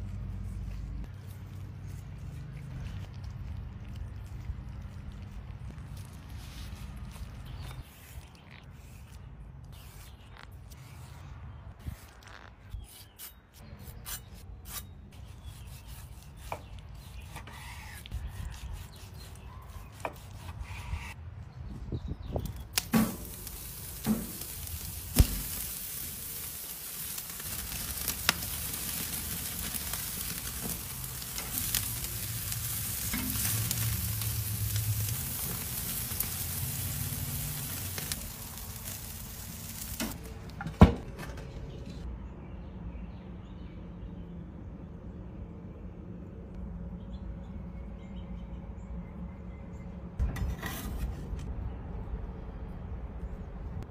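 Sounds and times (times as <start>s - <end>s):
meat sizzling on a grill: 22.8s - 40.2s.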